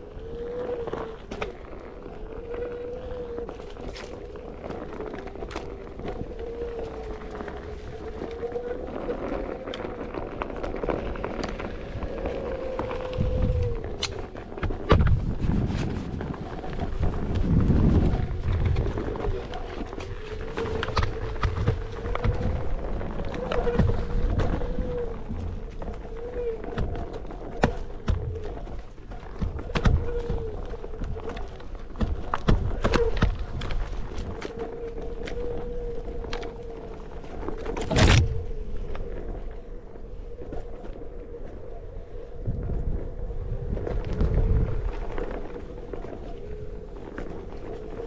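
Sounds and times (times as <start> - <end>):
tyre crackling over twigs: 0.0 - 48.0
knocks and clacks on dirt: 3.2 - 39.7.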